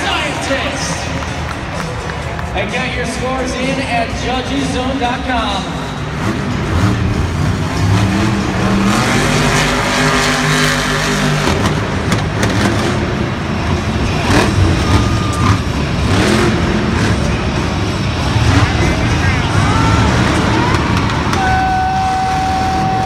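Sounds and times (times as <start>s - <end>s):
truck engine revving hard: 4.1s - 23.0s.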